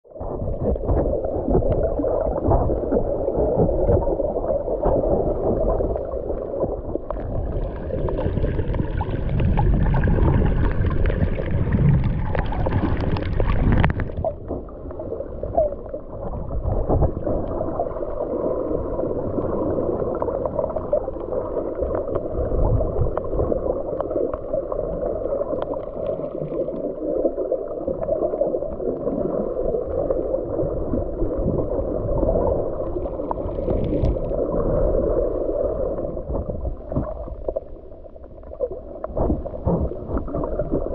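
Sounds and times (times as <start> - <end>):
underwater sloshing rumble: 0.0 - 40.9
hissy water splashing: 0.5 - 27.1.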